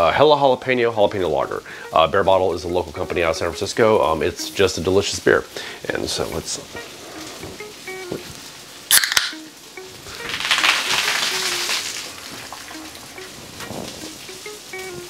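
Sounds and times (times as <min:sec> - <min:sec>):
beer gushing fizzing spray: 0:00.0 - 0:15.0
can cracked open with pop and hiss: 0:07.5 - 0:09.5, 0:10.2 - 0:12.8.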